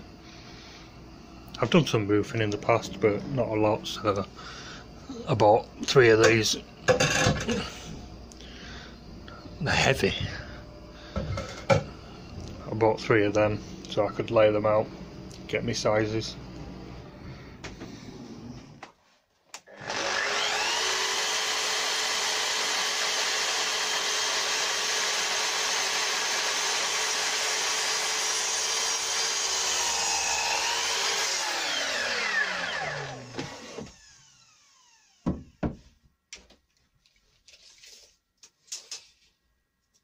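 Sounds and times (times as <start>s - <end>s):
mitre saw cutting timber: 19.7s - 35.6s
timber knocks: 35.2s - 35.9s.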